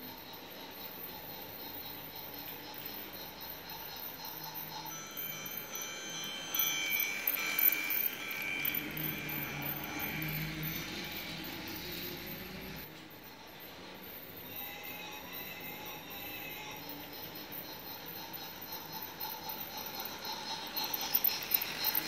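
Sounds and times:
toy train running on plastic track: 0.0s - 22.0s
chime-like ringing tones: 0.1s - 22.0s
low motor hum: 7.2s - 12.9s.

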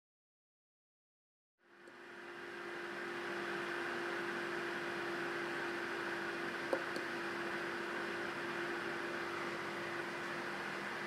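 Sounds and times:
small cooling fan whirring: 1.6s - 11.0s.

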